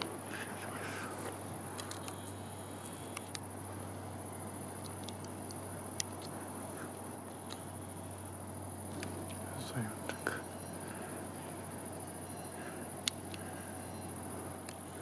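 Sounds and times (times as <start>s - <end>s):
faint ticks: 0.0s - 3.5s, 4.7s - 6.4s, 8.9s - 11.1s, 12.3s - 15.0s
crickets chirring: 0.0s - 15.0s
low steady hum: 0.0s - 15.0s.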